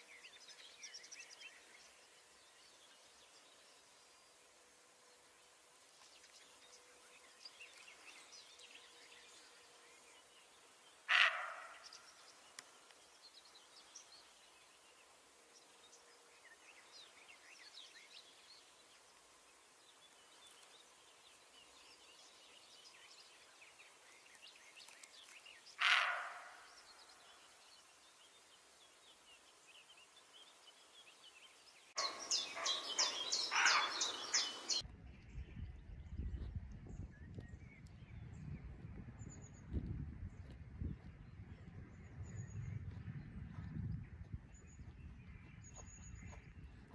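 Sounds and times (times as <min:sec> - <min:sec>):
faint birdsong: 0:00.0 - 0:46.9
deer barking: 0:11.1 - 0:11.8, 0:25.8 - 0:26.6, 0:32.0 - 0:34.1.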